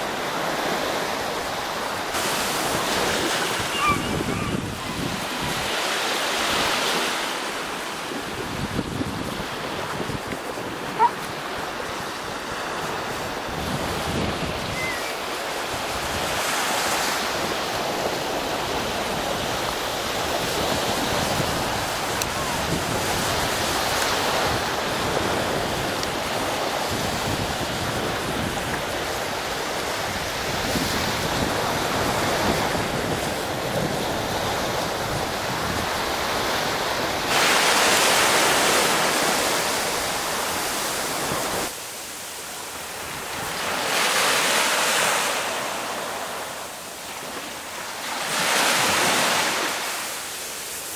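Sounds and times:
wind on microphone: 0:00.0 - 0:41.8
waves washing up a beach: 0:00.0 - 0:50.9.

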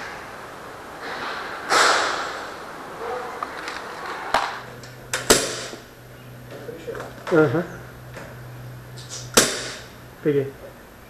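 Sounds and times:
noisy breath: 0:01.0 - 0:03.3.

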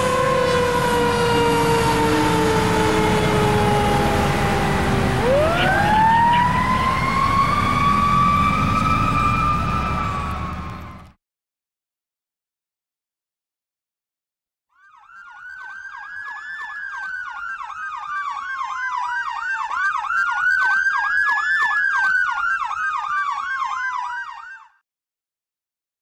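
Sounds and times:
siren rapid yelp: 0:00.0 - 0:11.0, 0:14.7 - 0:24.8
fire engine siren wail: 0:00.0 - 0:11.2, 0:14.8 - 0:24.8.

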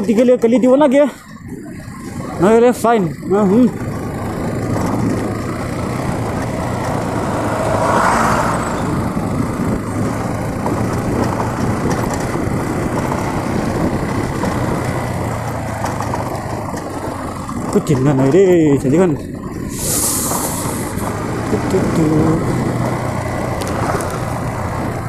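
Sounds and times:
motorcycle engine running: 0:00.0 - 0:25.0
wind and road noise: 0:00.0 - 0:25.0.

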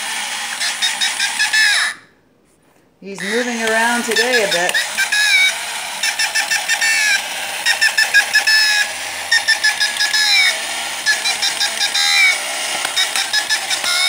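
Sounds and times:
toy mechanism clattering clicks: 0:00.0 - 0:02.0, 0:03.2 - 0:14.0
squeaky falling chirps: 0:04.2 - 0:14.0.

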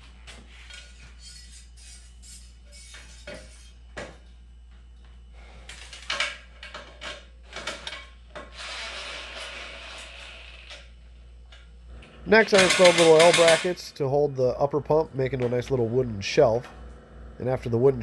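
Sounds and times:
metal housings knocking on metal frame: 0:12.4 - 0:13.8.

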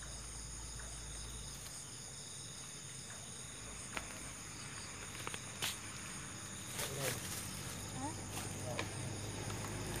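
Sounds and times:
night insects trilling: 0:00.0 - 0:10.0.

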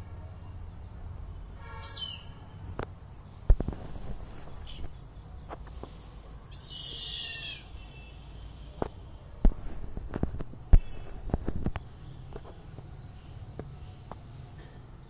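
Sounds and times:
bird's harsh shrill call: 0:01.7 - 0:02.6, 0:06.5 - 0:07.8.

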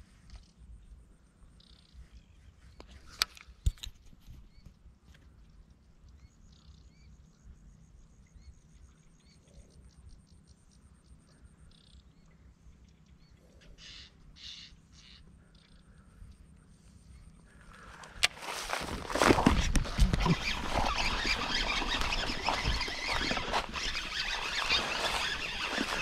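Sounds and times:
small birds chirping: 0:05.4 - 0:26.0.

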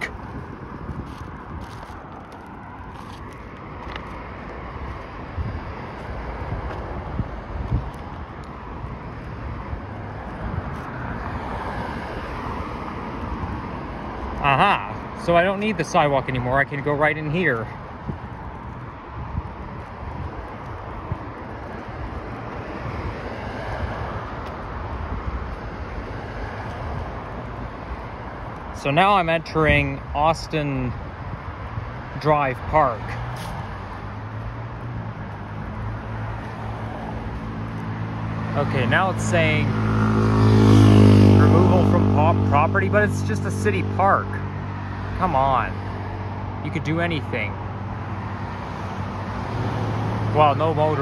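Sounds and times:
wind buffeting the microphone: 0:00.0 - 0:14.4, 0:17.6 - 0:34.2
highway traffic: 0:00.0 - 0:51.0.

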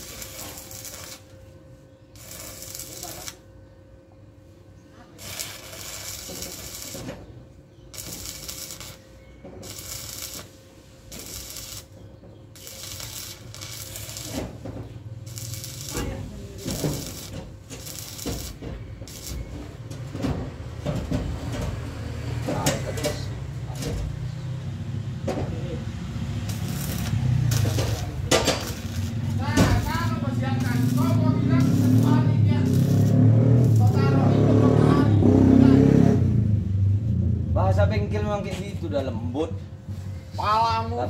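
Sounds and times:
arc welding crackling hiss: 0:00.0 - 0:01.4, 0:02.1 - 0:03.4, 0:05.2 - 0:07.2, 0:07.9 - 0:19.9, 0:26.1 - 0:34.4.

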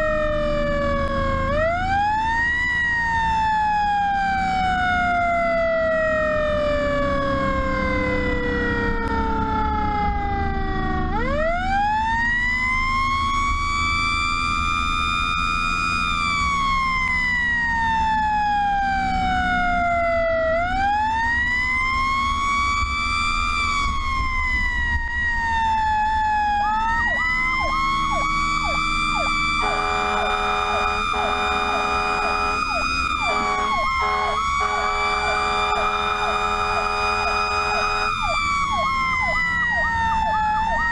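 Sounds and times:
truck engine rumble: 0:00.0 - 0:40.9
mechanical siren winding up and down: 0:00.9 - 0:40.9
short siren blips: 0:26.6 - 0:40.9
air horn blasts: 0:29.6 - 0:38.3.

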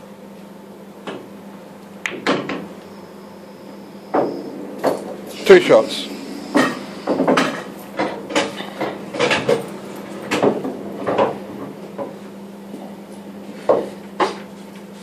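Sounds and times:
pool balls clicking: 0:02.0 - 0:02.7.

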